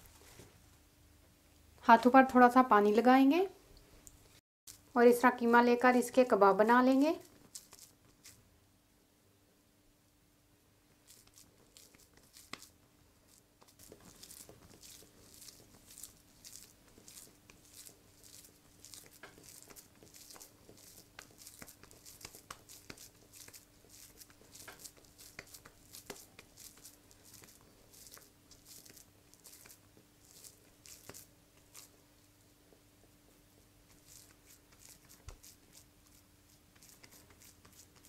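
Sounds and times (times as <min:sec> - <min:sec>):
wet hands squelching mince: 0:13.7 - 0:31.9.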